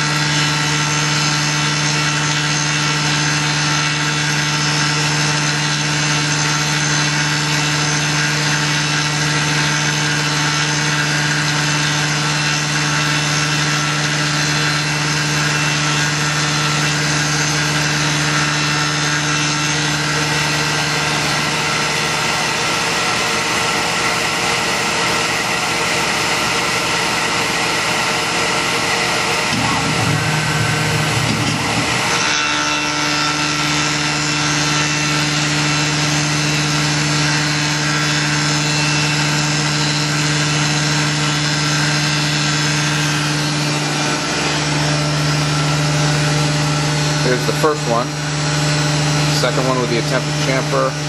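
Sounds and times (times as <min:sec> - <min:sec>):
end mill cutting metal: 0:00.0 - 0:51.0
mill spindle whine: 0:00.0 - 0:51.0
low hum: 0:29.5 - 0:32.5.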